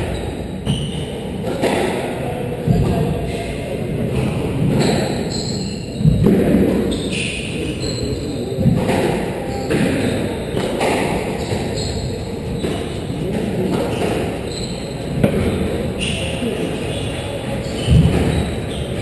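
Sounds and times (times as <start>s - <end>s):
squash ball thudding: 8.6s - 11.8s, 15.1s - 16.2s.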